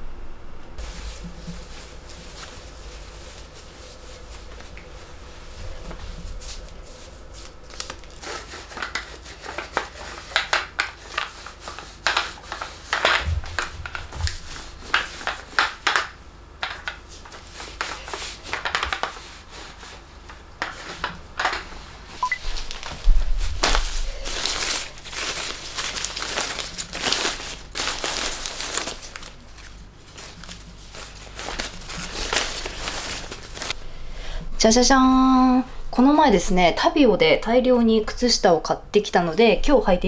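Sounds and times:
lint roller crackling on fabric: 0:00.8 - 0:16.0
dull thump: 0:13.2 - 0:14.7.

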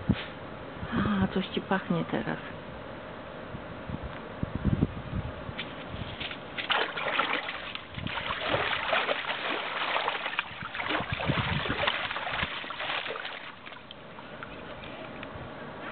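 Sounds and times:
dog splashing in paddling pool: 0:06.5 - 0:14.0.

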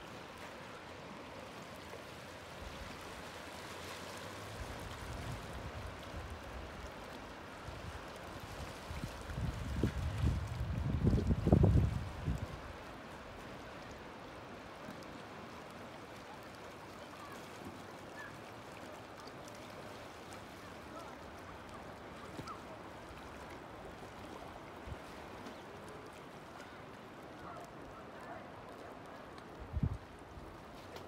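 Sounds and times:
calm sea washing on rocks: 0:00.0 - 0:31.0.

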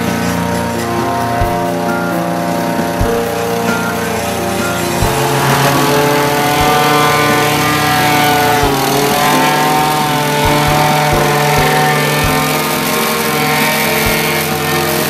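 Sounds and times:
low thumps: 0:00.0 - 0:13.0
plate compactor engine running: 0:00.0 - 0:15.0.

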